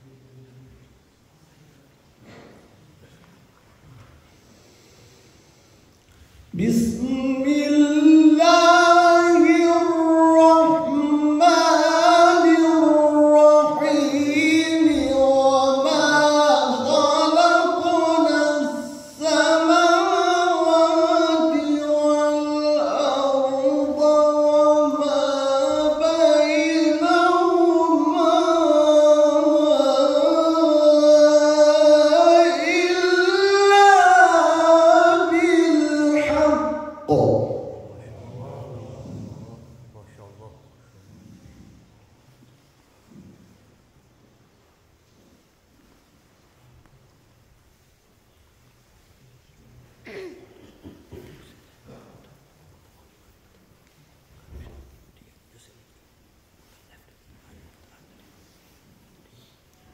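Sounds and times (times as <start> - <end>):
man chanting melodic recitation: 6.5 - 41.9.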